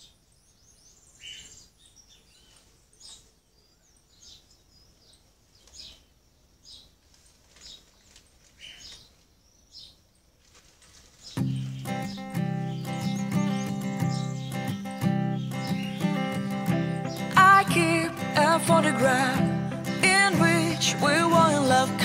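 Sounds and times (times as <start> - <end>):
small birds chirping: 0.0 - 22.0
guitar music: 11.4 - 22.0.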